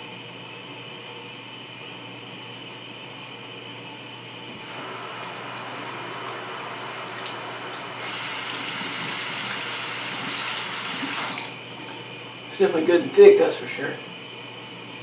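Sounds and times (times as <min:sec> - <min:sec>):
tap water running into sink: 0:04.6 - 0:11.6.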